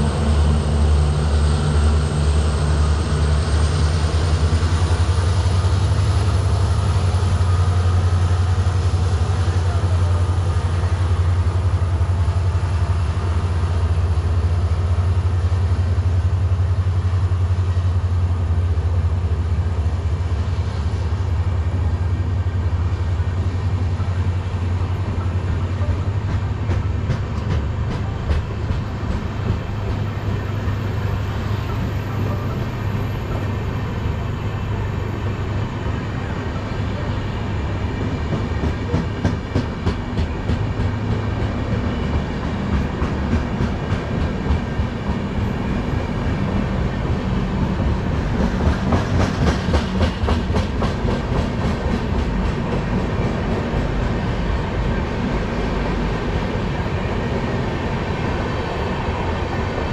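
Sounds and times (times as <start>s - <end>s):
train wheels clattering over joints: 25.2s - 30.3s, 38.3s - 45.2s, 48.3s - 53.0s.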